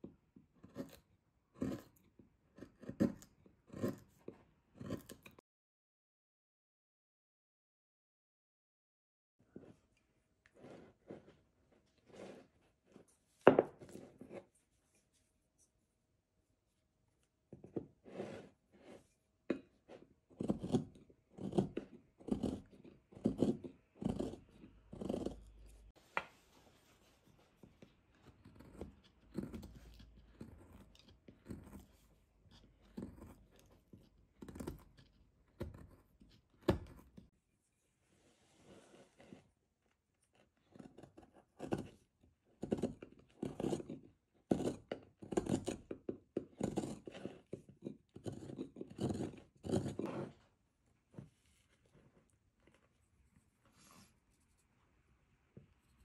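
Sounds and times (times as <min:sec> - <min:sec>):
chisel cutting wood: 0:00.5 - 0:05.4, 0:17.6 - 0:25.9, 0:28.1 - 0:37.3, 0:40.3 - 0:50.4.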